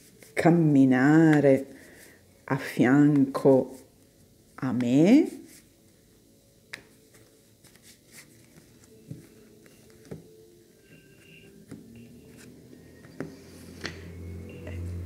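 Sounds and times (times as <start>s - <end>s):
cards shuffling: 6.7s - 10.3s
cards spread on cloth: 6.8s - 10.2s.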